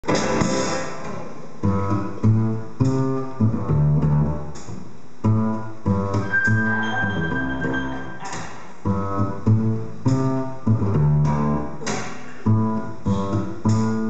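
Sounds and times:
jazz piano: 0.0 - 14.0
plucked double bass: 1.6 - 14.0
thin high held tone: 6.2 - 8.4.

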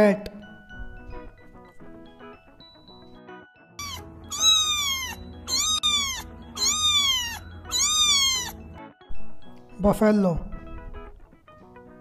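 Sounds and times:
quiet background music: 0.0 - 12.0
kitten meowing: 3.8 - 8.6.

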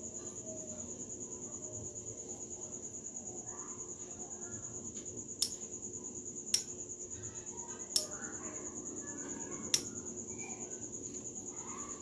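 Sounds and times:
insect trill: 0.0 - 12.0
metallic clicks of reel parts: 7.9 - 8.2.

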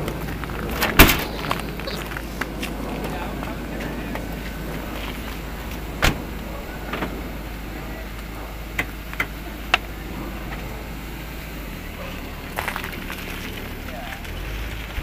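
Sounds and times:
low rumble: 0.0 - 15.0
car door slamming: 0.7 - 1.5, 4.0 - 11.0.

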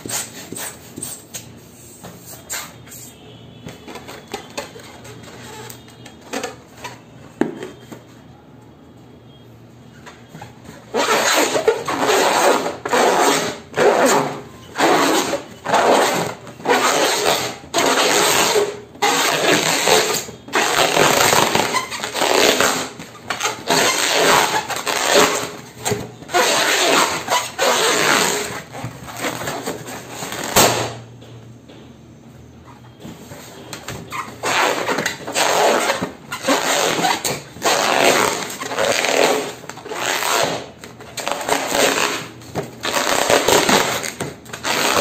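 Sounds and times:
hands rubbing a balloon: 0.0 - 7.9, 10.2 - 30.8, 33.4 - 45.0
balloon bursting: 10.9 - 31.0, 34.3 - 45.0.

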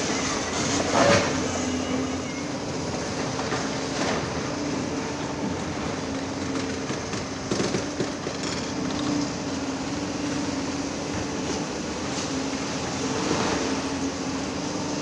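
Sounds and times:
heavy diesel machinery running: 0.0 - 15.0
knocks and clatter: 6.5 - 9.0.

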